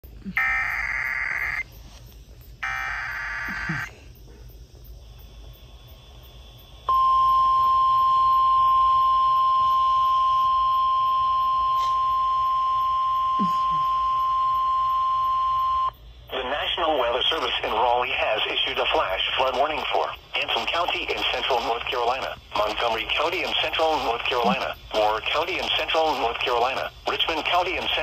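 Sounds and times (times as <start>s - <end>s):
screeching digital data bursts: 0.4s - 1.7s, 2.6s - 3.9s.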